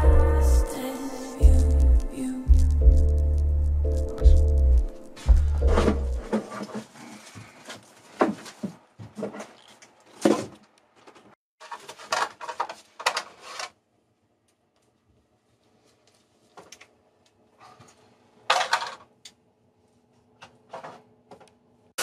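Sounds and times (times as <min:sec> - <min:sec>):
knocks and clunks of handling: 0:05.7 - 0:13.4.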